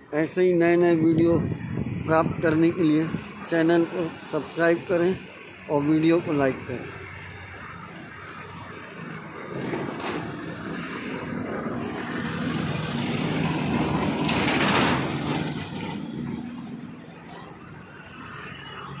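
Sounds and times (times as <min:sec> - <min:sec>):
vehicle engine passing by: 0:09.1 - 0:17.0.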